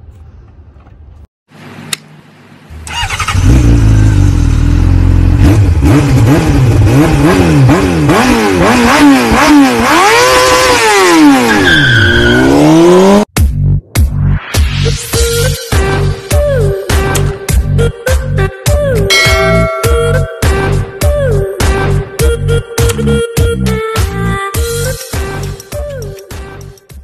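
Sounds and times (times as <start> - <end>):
engine revving: 2.8 - 11.6, 12.4 - 13.3.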